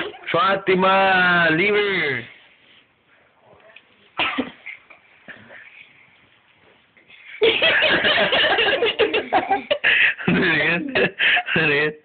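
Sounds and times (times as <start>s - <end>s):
people laughing loudly: 7.4s - 11.8s.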